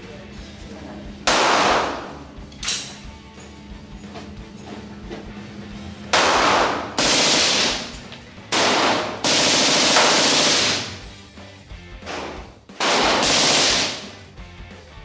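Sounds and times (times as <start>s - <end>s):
loud gunshots echoing indoors: 1.2s - 2.3s, 6.1s - 11.1s, 12.0s - 14.2s.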